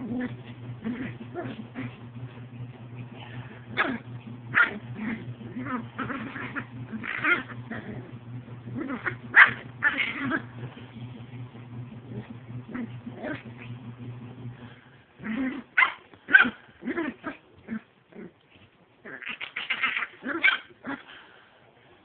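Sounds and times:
dog growling: 0.0 - 18.4, 19.0 - 21.2
dog barking and yipping: 3.7 - 8.0, 8.8 - 10.6, 15.5 - 17.4, 19.1 - 21.0.

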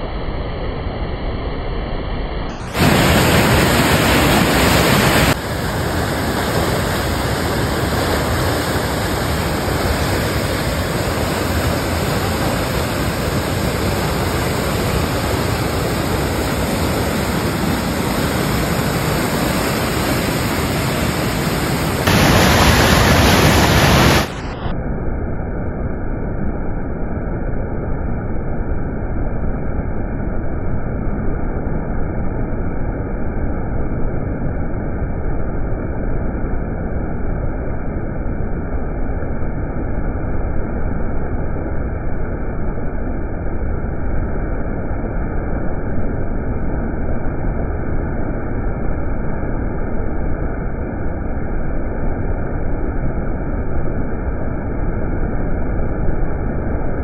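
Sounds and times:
floodwater rushing in river: 2.7 - 24.7.

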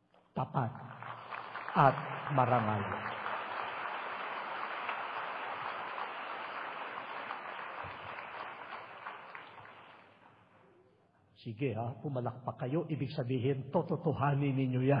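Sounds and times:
audience applause: 0.9 - 10.2.

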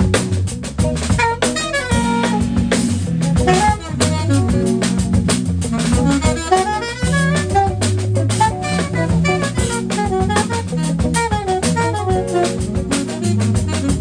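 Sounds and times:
bass line: 0.0 - 14.0
drum kit with cymbals: 0.0 - 14.0
electric guitar: 0.0 - 14.0
keyboard: 0.0 - 14.0.

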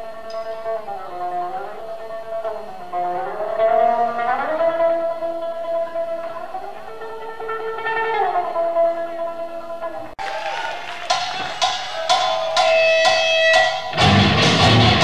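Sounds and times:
electric guitar sliding notes: 0.0 - 15.0
live punk band: 10.2 - 15.0.

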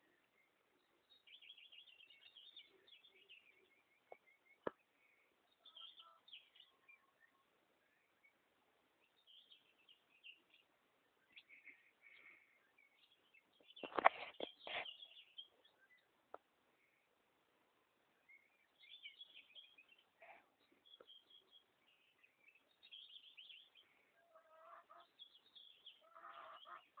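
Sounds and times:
faint bird calls: 1.3 - 8.3, 11.2 - 16.1, 18.2 - 27.0.

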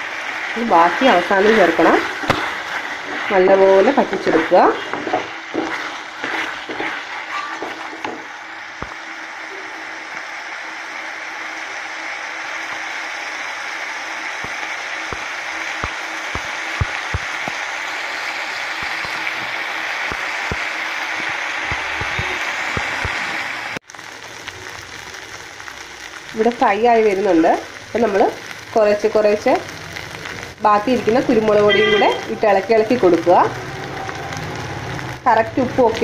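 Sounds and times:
beef sizzling in a pan: 0.0 - 36.0
spatula stirring: 0.2 - 8.9
sharp pops and crackles: 0.5 - 9.0, 14.4 - 31.2.

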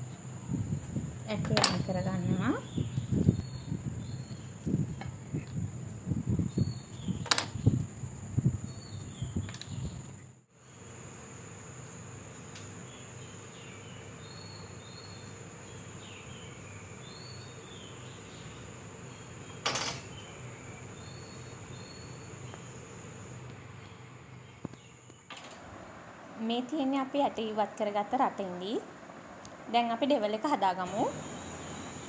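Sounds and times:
high-pitched insect drone: 30.9 - 32.0.

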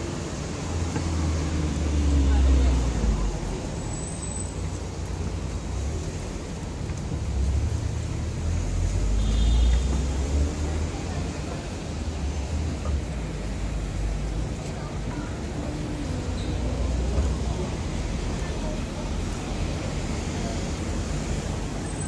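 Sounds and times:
cars driving past: 0.0 - 22.0.

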